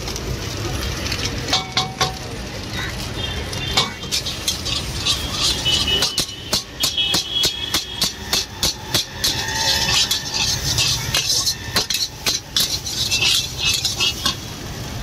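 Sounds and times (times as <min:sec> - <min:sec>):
ladle clanking on wok: 0:01.5 - 0:02.3, 0:03.8 - 0:14.6.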